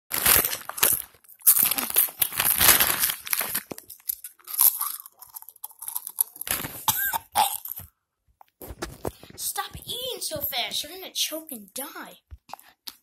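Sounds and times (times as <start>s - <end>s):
chips being crunched: 0.1s - 7.0s
plastic snack bag crinkling: 0.1s - 7.9s.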